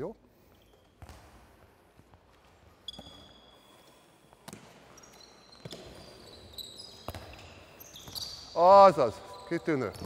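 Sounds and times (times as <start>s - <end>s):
sneakers squeaking: 0.4s - 10.0s
ball bouncing on wooden floor: 7.0s - 7.4s.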